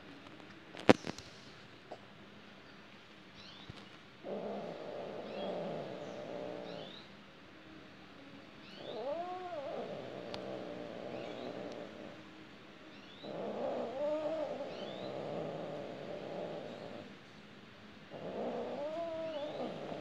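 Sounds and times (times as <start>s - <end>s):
cat yowling: 8.8s - 11.8s, 18.2s - 20.0s.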